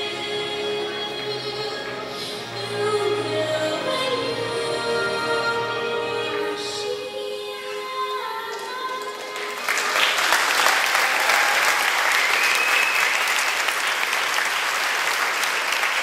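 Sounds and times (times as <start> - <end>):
background music: 0.0 - 9.7
audience applauding: 8.5 - 16.0.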